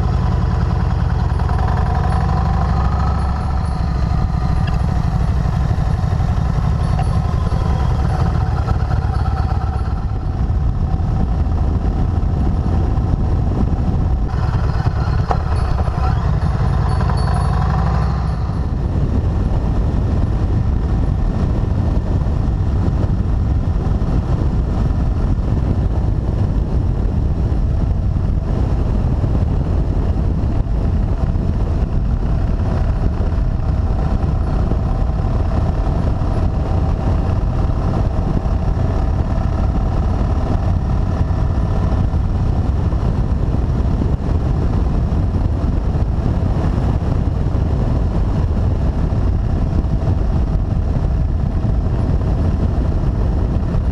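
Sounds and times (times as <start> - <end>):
low wind rumble on microphone: 0.0 - 53.9
motorcycle engine hum: 0.0 - 53.9.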